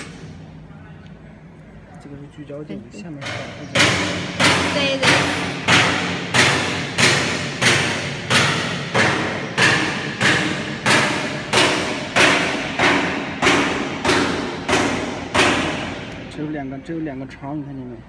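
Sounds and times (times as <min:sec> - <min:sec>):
low steady hum: 0:00.0 - 0:18.0
machine thudding rhythmically: 0:03.2 - 0:16.3.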